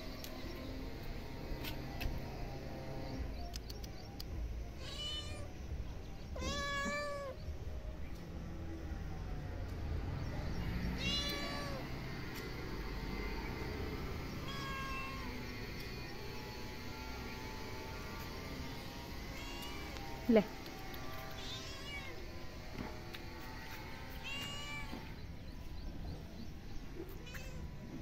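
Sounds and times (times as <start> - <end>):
cat meowing: 4.8 - 5.5, 6.4 - 7.4, 11.0 - 11.9, 14.4 - 15.4, 19.3 - 20.0, 21.3 - 22.2, 24.2 - 25.1, 27.2 - 27.7.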